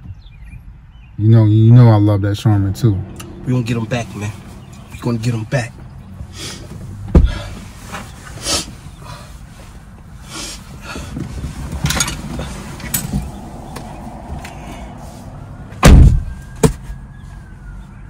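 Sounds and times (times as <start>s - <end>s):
rustling and shuffling: 3.9s - 15.4s
car door slamming: 6.6s - 7.7s, 15.8s - 16.8s.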